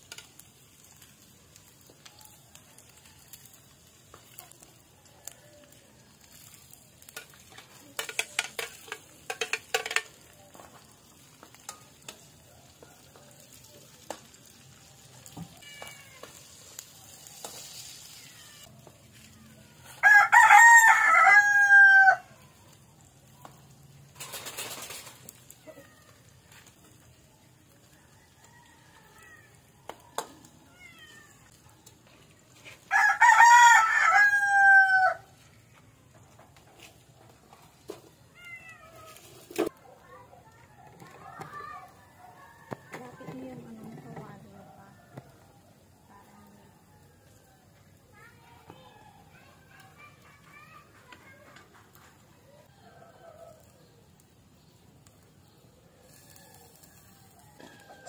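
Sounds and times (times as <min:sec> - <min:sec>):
sizzling: 0:00.0 - 0:58.0
metal spatula scraping a pan: 0:06.5 - 0:10.2, 0:17.3 - 0:18.6
rooster crowing: 0:19.9 - 0:22.4, 0:27.9 - 0:29.6, 0:32.9 - 0:35.3, 0:52.5 - 0:53.9, 0:56.1 - 0:58.0.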